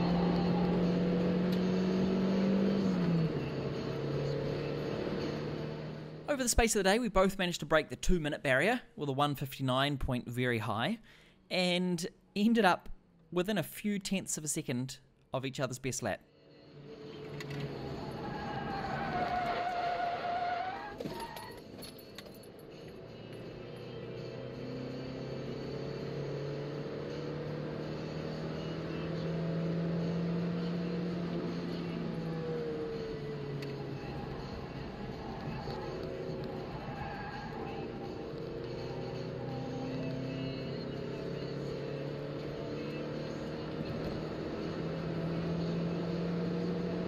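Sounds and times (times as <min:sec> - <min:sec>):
car engine pulling under load: 0:00.0 - 0:06.3, 0:16.6 - 0:47.0.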